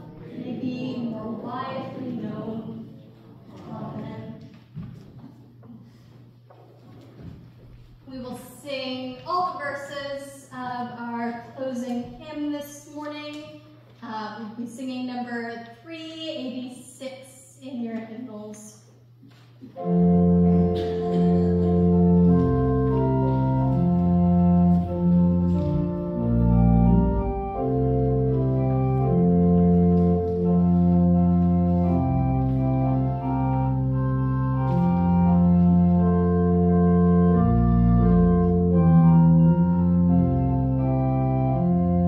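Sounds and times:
church organ playing a hymn: 0:19.7 - 0:42.0.

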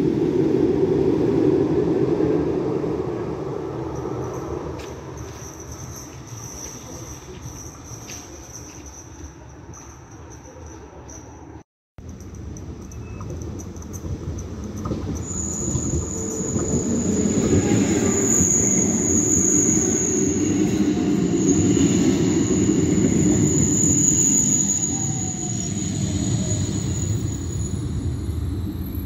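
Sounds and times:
tram wheels rumbling on rails: 0:00.0 - 0:29.0
high-pitched whine: 0:14.8 - 0:29.0.

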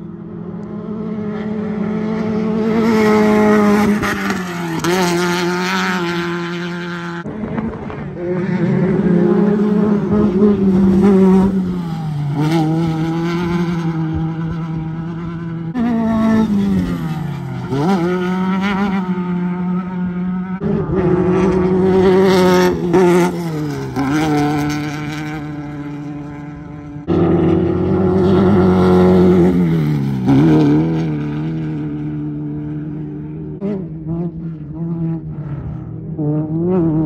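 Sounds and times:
race car engines revving: 0:00.0 - 0:37.0.

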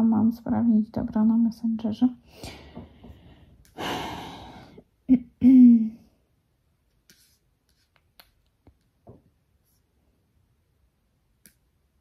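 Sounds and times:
woman humming: 0:05.1 - 0:06.0.

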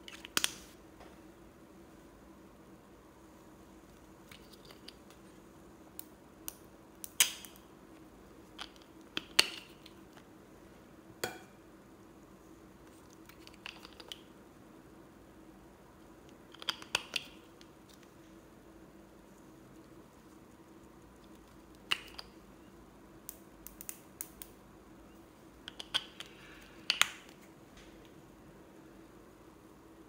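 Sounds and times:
faint steady hum: 0:00.0 - 0:30.0
plastic tubes clicking and knocking: 0:08.5 - 0:10.2, 0:13.1 - 0:14.3, 0:16.3 - 0:18.0, 0:21.7 - 0:22.4, 0:25.6 - 0:27.4.

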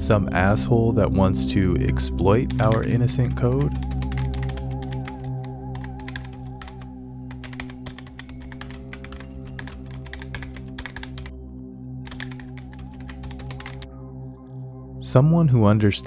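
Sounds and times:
background music: 0:00.0 - 0:16.0
computer keyboard typing: 0:02.5 - 0:11.3, 0:12.0 - 0:13.9.

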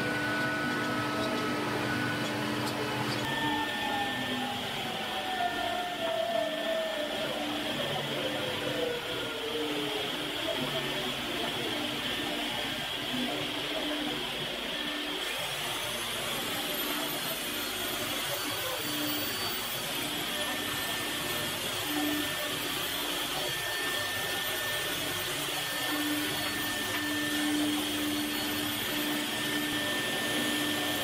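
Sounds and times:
electric drill brushing wood: 0:15.1 - 0:31.0.

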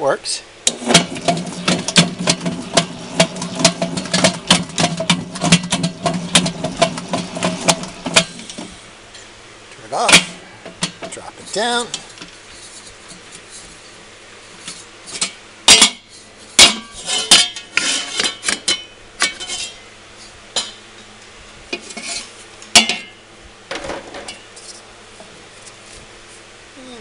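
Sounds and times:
metal mixer bowl clanks and scrapes: 0:00.7 - 0:08.8, 0:14.6 - 0:19.8, 0:21.8 - 0:23.2.

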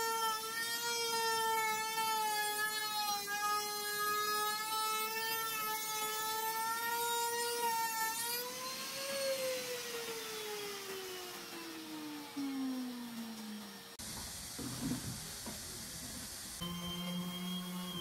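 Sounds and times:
power tool motor whining: 0:00.0 - 0:14.0
hiss: 0:14.0 - 0:16.6.

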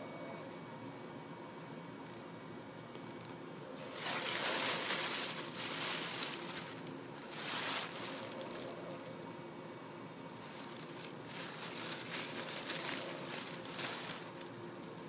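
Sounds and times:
tissue paper rustling and crinkling: 0:03.8 - 0:08.9, 0:10.4 - 0:15.0.

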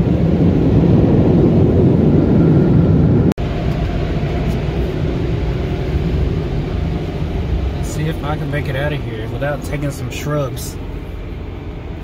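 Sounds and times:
car wash air blowers: 0:03.4 - 0:12.0.

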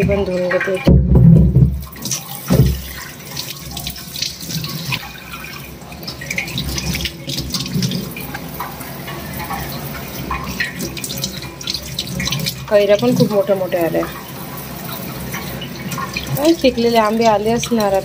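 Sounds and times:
tap water splashing into sink: 0:00.0 - 0:18.0
short thump: 0:00.9 - 0:01.8.

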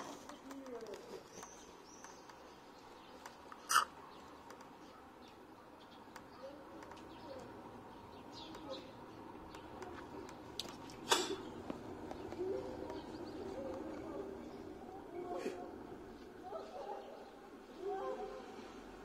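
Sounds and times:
pigeon cooing: 0:12.3 - 0:14.5.

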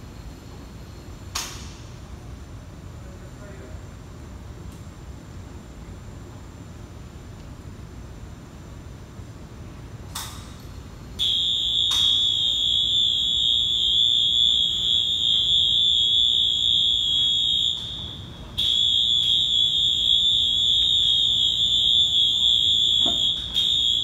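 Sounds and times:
crane warning alarm tone: 0:11.2 - 0:24.0.

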